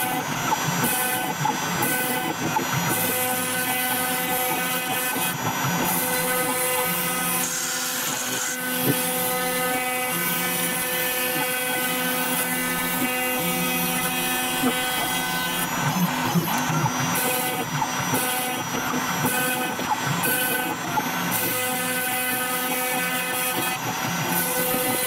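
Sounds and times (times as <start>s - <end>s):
router spindle whine: 0.0s - 25.0s.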